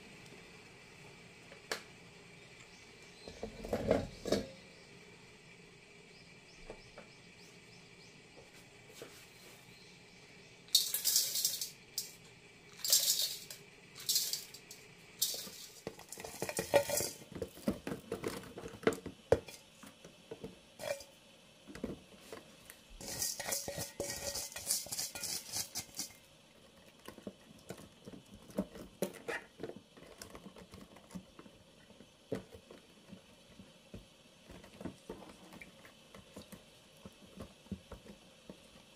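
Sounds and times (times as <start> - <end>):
metallic colander rattling: 10.7 - 18.7, 20.8 - 21.1, 23.0 - 26.2.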